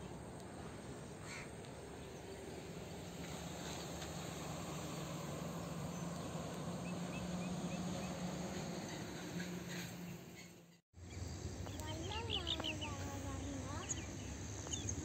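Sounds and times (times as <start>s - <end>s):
bird chirping: 5.5s - 15.0s.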